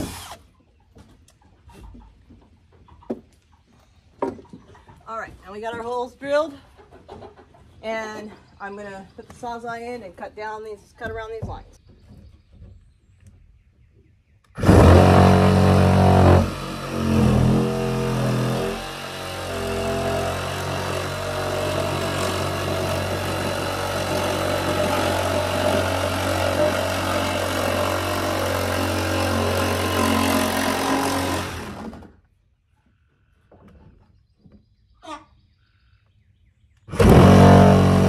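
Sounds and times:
reciprocating saw cutting wood: 0.0 - 0.5, 14.6 - 32.2, 36.9 - 38.0.

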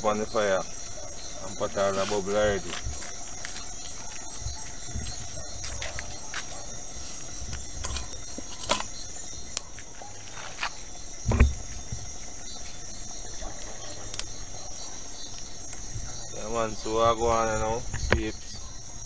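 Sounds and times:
crickets chirring: 0.0 - 19.0
loud low thump: 11.2 - 11.7.

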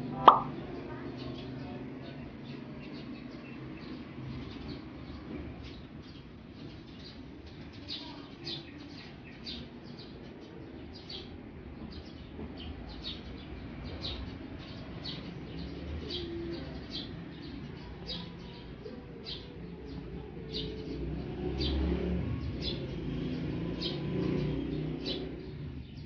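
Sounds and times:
small bird chirping: 0.2 - 1.8.

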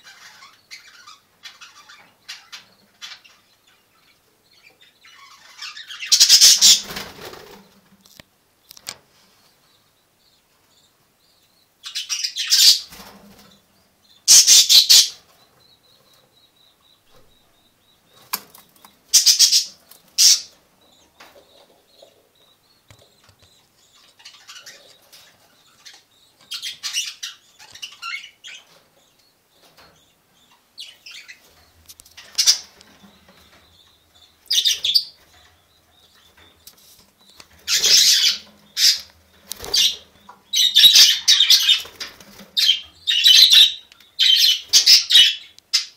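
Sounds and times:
faint high bird chirping: 0.0 - 7.7, 8.6 - 45.9
bird wings flapping: 6.8 - 7.7.

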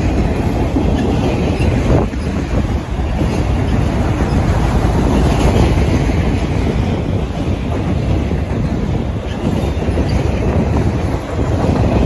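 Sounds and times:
freight train wheels on rails: 0.0 - 12.0.

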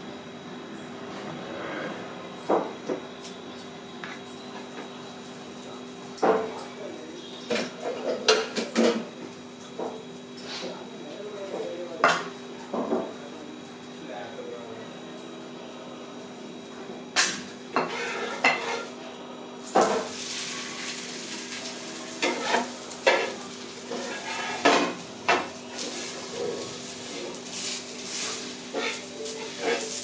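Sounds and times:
metal spatula scraping griddle: 17.8 - 18.9, 22.2 - 25.0, 25.7 - 30.0
bread sizzling in oil: 19.6 - 30.0.

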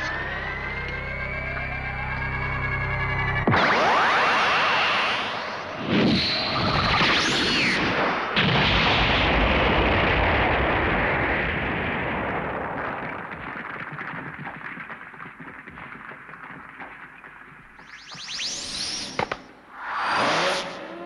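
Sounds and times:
cartoon explosion blast: 3.5 - 13.4.

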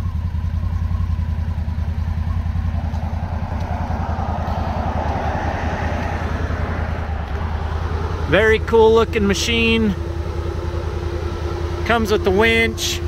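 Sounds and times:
engine idling: 0.0 - 13.0
rushing noise: 2.4 - 8.4.

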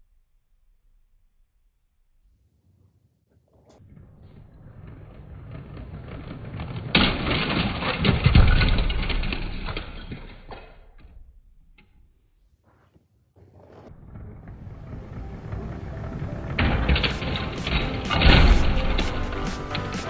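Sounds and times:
toy train crashing: 4.6 - 11.1, 14.5 - 20.0
toy train running on plastic track: 4.8 - 9.9, 14.6 - 20.0
loud plastic clattering: 4.9 - 11.1, 14.4 - 20.0.

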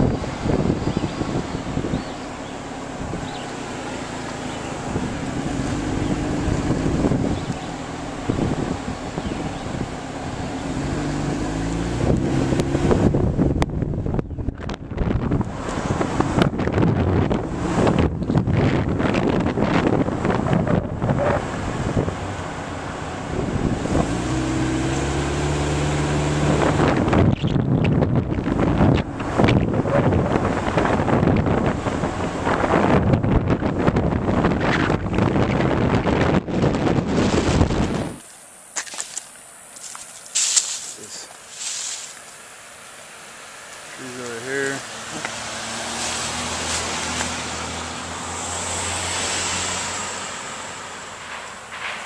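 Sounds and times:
vehicle engine running: 0.0 - 38.2
wind rumbling on microphone: 0.0 - 38.3.

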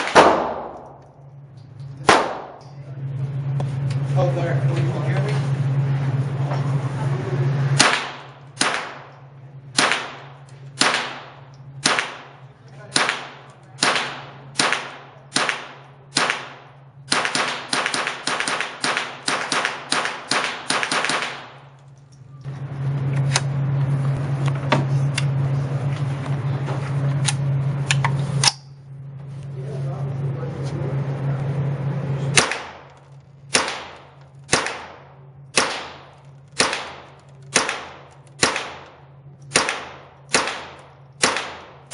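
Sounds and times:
rifle shots cracking: 0.0 - 1.0, 2.0 - 2.6, 7.8 - 9.2, 9.8 - 21.8, 32.4 - 41.9
steady low hum: 0.0 - 41.9.

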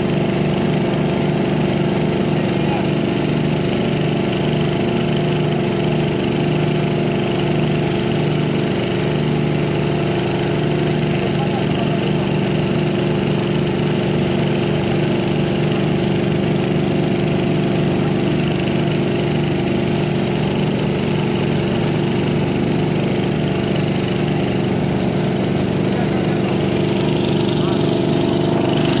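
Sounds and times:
small engine running steadily: 0.0 - 29.0.

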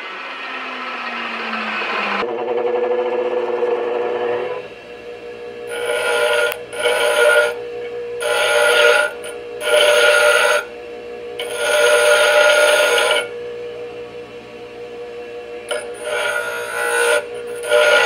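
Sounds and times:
bench grinder motor whine: 0.0 - 18.0
metal rod grinding: 5.7 - 7.6, 8.2 - 10.7, 11.4 - 13.3, 15.7 - 18.0.

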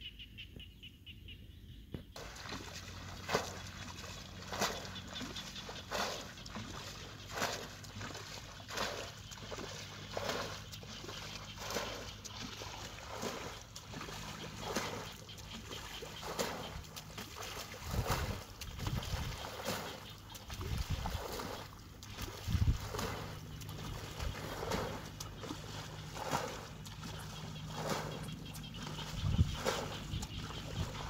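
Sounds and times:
muddy water splashing: 2.2 - 31.0.

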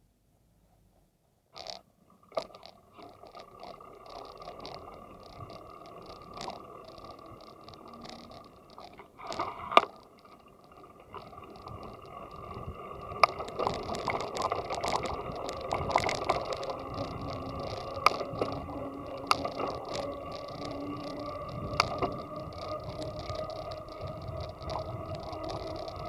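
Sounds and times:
bicycle rolling and rattling: 1.6 - 26.0
clicks and rattles: 1.6 - 26.0.

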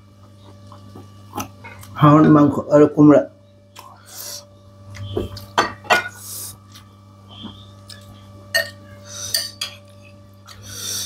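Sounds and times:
utensils clinking on plate: 5.6 - 6.2, 7.9 - 10.2.

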